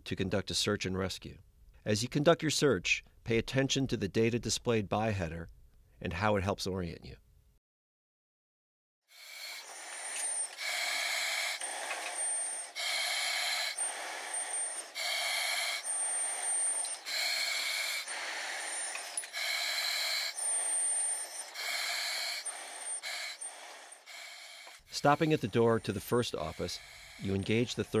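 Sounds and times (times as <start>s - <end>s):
breathing through a mask regulator: 9.1s - 28.0s.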